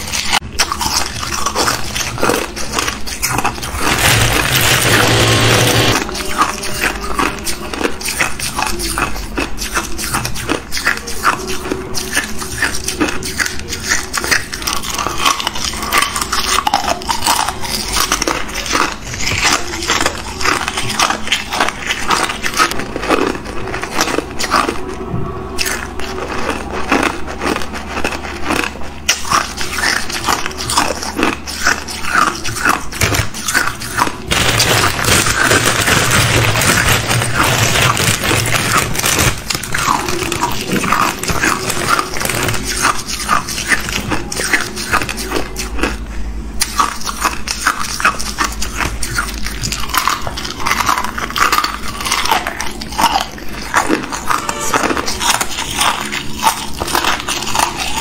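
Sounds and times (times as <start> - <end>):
ice cubes crunching when chewed: 0.0 - 58.0
plastic bag rustling: 1.4 - 8.1, 32.7 - 45.1
ice pieces rattling: 3.6 - 6.9, 34.2 - 44.1.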